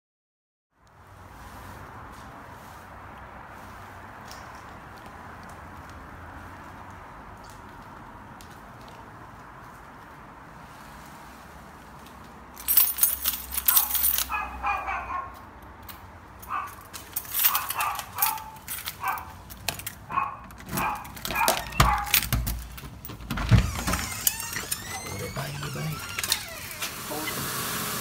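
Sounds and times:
keys jangling: 12.5s - 14.8s, 15.8s - 26.6s
dog barking behind door: 13.6s - 15.5s, 16.4s - 22.6s
lock and door handle clicking: 17.3s - 27.0s.

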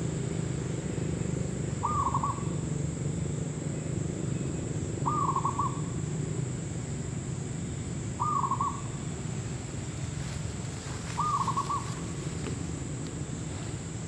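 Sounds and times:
dove cooing: 1.8s - 2.5s, 5.0s - 5.9s, 8.2s - 8.9s, 10.8s - 12.6s.

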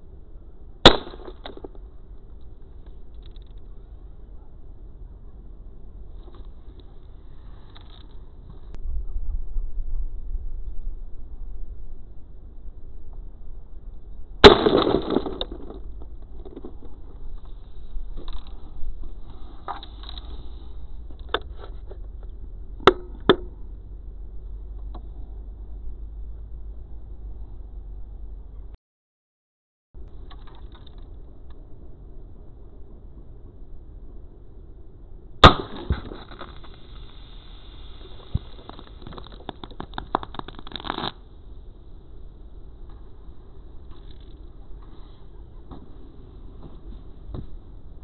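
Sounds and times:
steady low rumble: 0.0s - 28.8s, 30.0s - 48.0s
gunshot hitting a can: 0.9s - 1.6s, 14.4s - 15.6s, 35.4s - 36.2s
crackling and spattering: 35.4s - 44.5s.

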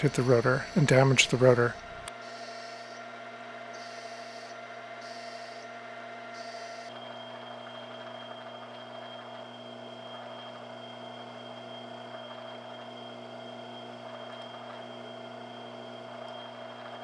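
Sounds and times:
drill cutting with high tone: 0.0s - 16.8s
lathe motor hum: 0.0s - 17.0s
boring tool cutting hiss: 3.7s - 5.7s, 6.4s - 7.0s.

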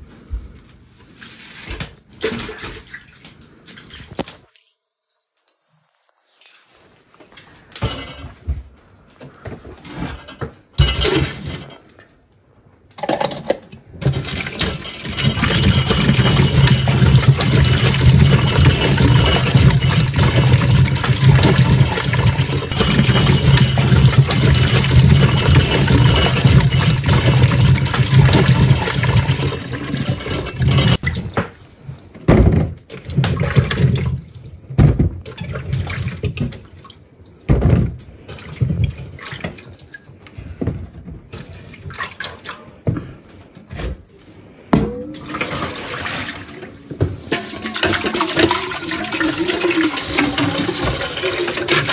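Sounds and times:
tap water running into a pot: 14.0s - 31.5s, 45.2s - 51.9s
pot knocking in sink: 14.1s - 31.0s
water splashing: 14.1s - 31.7s, 45.2s - 51.9s.

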